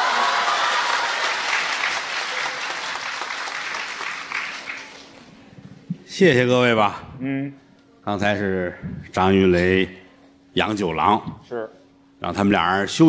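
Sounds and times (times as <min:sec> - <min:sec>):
audience applauding: 0:00.0 - 0:05.4.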